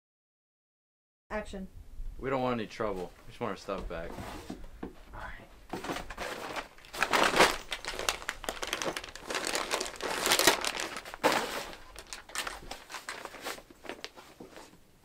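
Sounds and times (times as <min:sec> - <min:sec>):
fabric bag rustling: 0:05.7 - 0:14.8.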